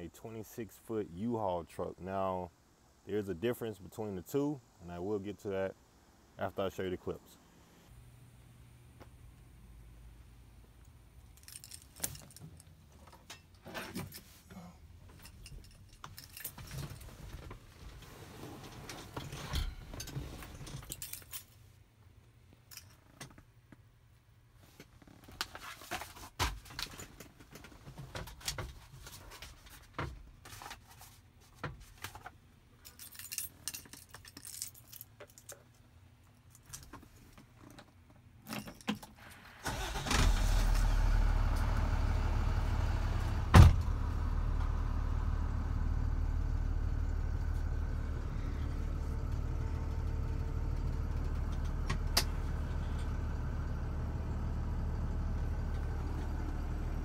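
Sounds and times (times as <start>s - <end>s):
diesel engine starting and idling: 39.3s - 57.0s.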